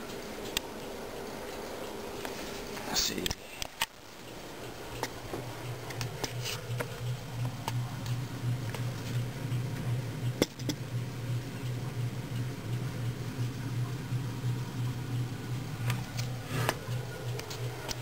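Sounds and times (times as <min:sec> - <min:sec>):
low hum: 0:03.9 - 0:18.0.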